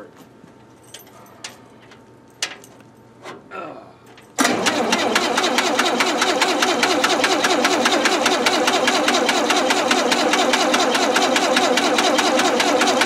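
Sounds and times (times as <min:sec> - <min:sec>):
starter cranking engine: 0:04.4 - 0:13.0.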